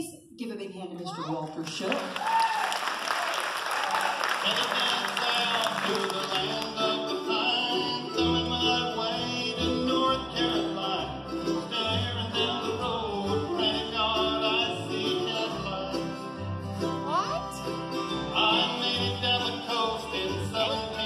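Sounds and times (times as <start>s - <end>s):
bluegrass band playing: 4.4s - 21.0s
upright bass notes: 4.7s - 21.0s.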